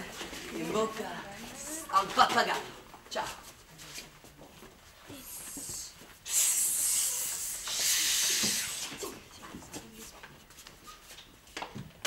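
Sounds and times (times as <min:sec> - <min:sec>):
people shushing: 0:05.1 - 0:09.2.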